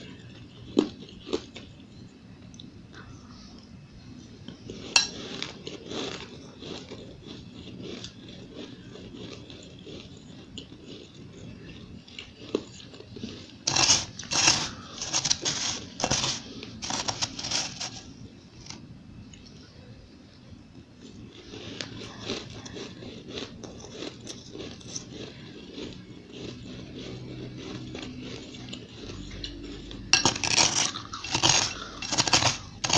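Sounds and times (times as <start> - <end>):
chewing crunchy ice: 0.0 - 2.6, 4.5 - 18.8, 21.0 - 32.9
metal spoon digging into ice: 13.7 - 18.1, 30.1 - 32.9.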